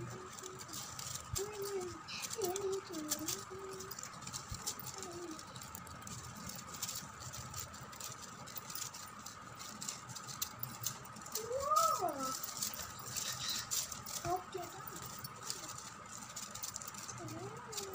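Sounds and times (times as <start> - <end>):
paper strips rustling: 0.0 - 17.9.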